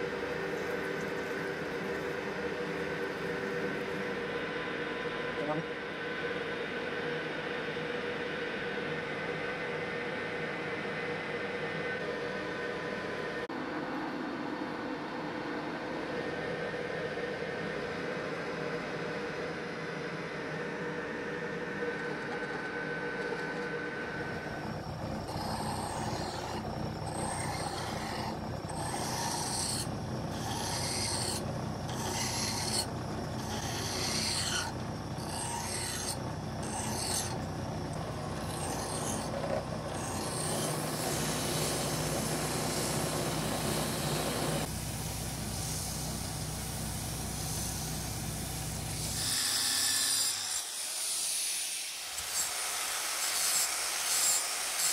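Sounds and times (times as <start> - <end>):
metal lathe humming: 0.0 - 4.4, 24.1 - 50.8
hand file scraping metal: 25.2 - 37.4, 38.3 - 44.7
smooth rubbing on metal: 25.2 - 37.4
cutting tool on metal: 25.2 - 44.7, 48.8 - 54.9.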